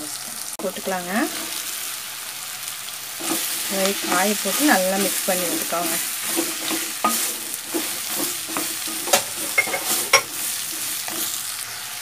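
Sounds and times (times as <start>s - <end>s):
food sizzling in oil: 0.0s - 12.0s
spatula scraping a clay pot: 5.4s - 11.4s.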